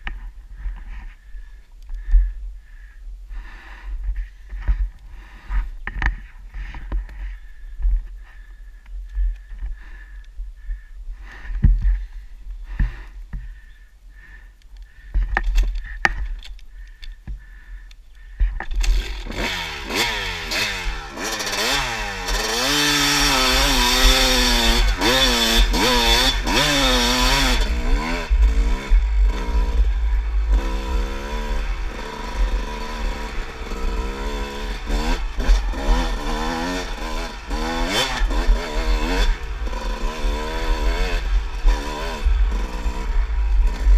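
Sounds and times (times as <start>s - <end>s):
dirt bike engine revving: 18.8s - 43.9s.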